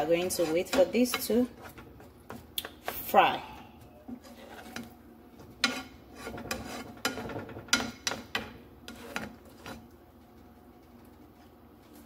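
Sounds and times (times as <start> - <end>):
spatula scraping frying pan: 0.0 - 2.3, 4.1 - 9.9.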